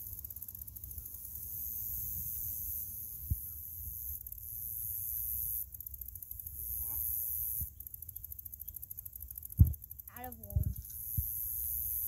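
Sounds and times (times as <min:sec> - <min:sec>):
insects droning: 0:00.0 - 0:12.0
wind rumble on microphone: 0:09.6 - 0:09.8, 0:10.4 - 0:11.3.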